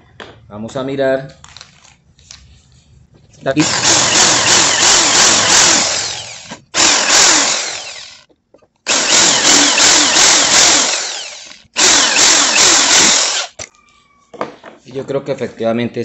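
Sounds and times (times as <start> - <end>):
electric drill boring into brass: 3.6 - 8.2, 8.9 - 13.6.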